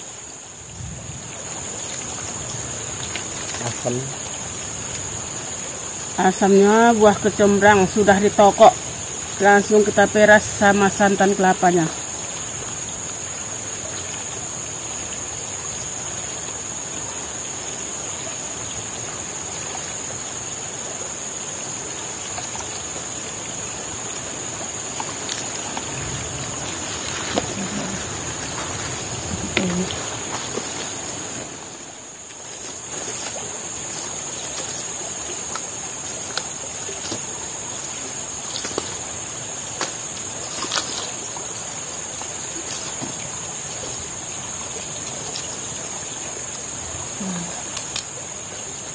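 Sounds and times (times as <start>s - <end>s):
river rushing: 0.0s - 48.9s
wet squelching of hand squeezing: 38.4s - 41.6s.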